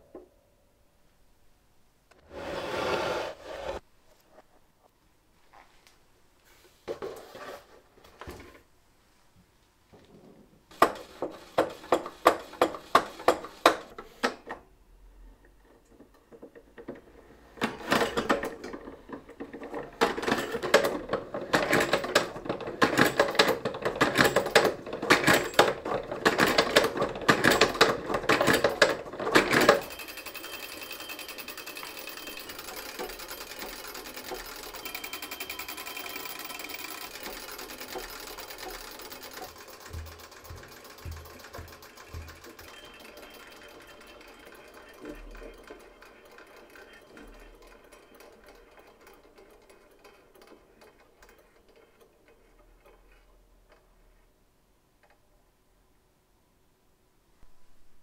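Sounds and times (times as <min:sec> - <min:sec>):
game mechanism clattering and whirring: 0:15.8 - 0:53.3.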